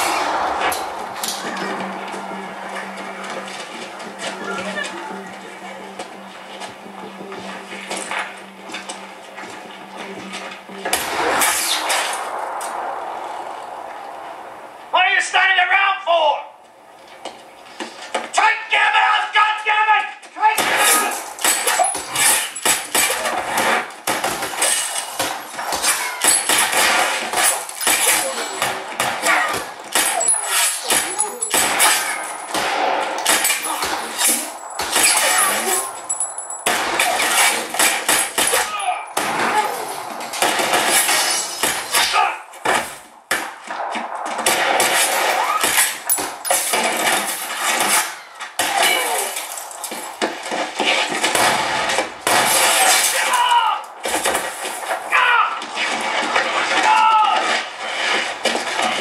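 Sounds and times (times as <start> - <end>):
action film sound effects: 0.0 - 19.0, 19.8 - 59.0
gunshots and impacts: 20.6 - 59.0
sharp hits and clattering: 20.6 - 59.0.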